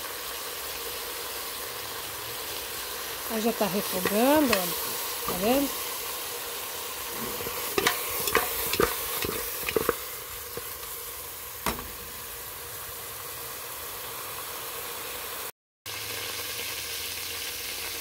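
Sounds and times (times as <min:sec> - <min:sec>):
chicken sizzling in a pot: 0:00.0 - 0:18.0
spoon scraping a pot: 0:03.8 - 0:05.6, 0:07.1 - 0:11.0.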